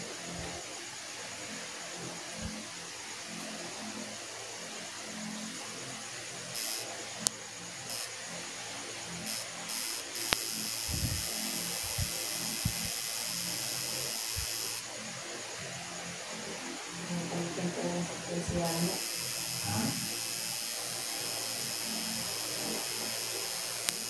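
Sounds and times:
tattoo machine buzzing: 6.5 - 7.0, 7.8 - 8.2, 9.2 - 15.0, 18.4 - 24.0
sharp clicks: 9.3 - 13.0, 23.6 - 24.0.

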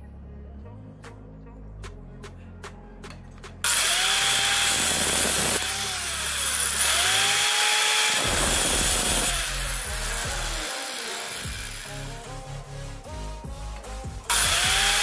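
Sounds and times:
electric disc cutter whining: 3.7 - 12.3, 14.3 - 15.0.

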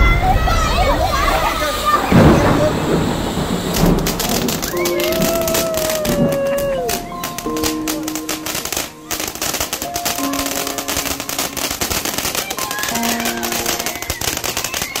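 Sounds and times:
fireworks crackling: 0.0 - 15.0
background music: 4.7 - 15.0.

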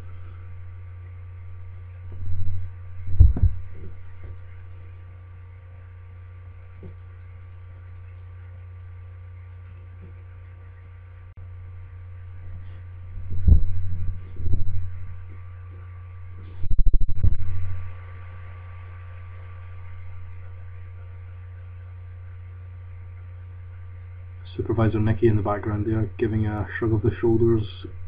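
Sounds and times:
soft low thumps: 0.0 - 21.5
low electrical hum: 0.0 - 28.0.

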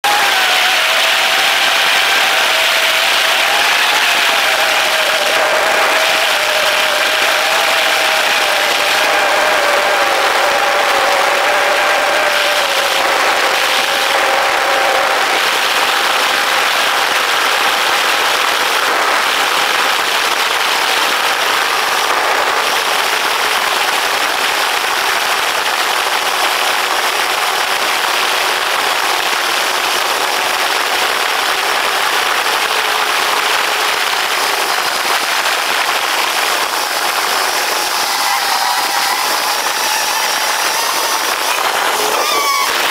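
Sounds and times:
drone motors whirring: 34.0 - 42.9.

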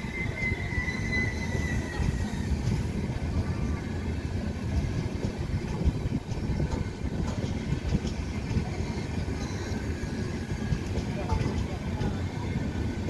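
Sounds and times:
train knocks: 0.0 - 3.7, 4.6 - 13.0
train wheels rumbling on rails: 0.0 - 13.0.

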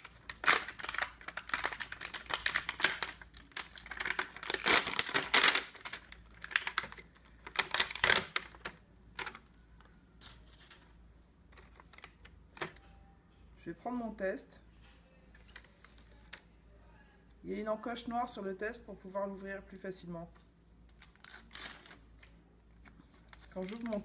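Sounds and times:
plastic pouch tearing and crinkling: 0.0 - 9.3, 20.9 - 22.0.

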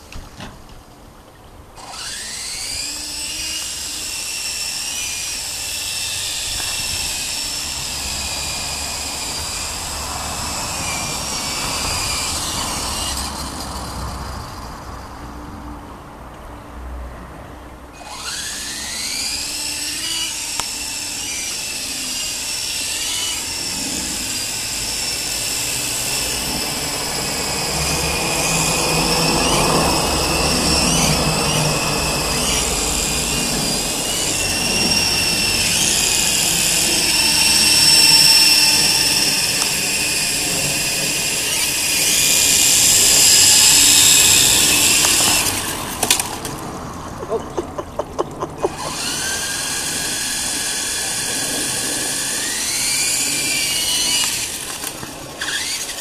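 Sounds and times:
rc helicopter rotor whine: 1.7 - 15.7, 17.9 - 56.0.

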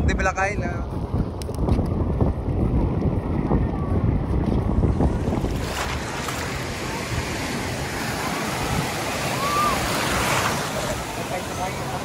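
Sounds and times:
sea waves washing onto beach: 4.9 - 12.0.

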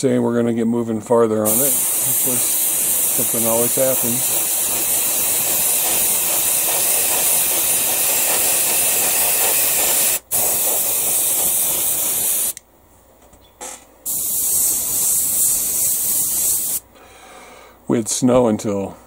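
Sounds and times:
airbrush hissing: 1.4 - 12.6, 14.1 - 16.9.

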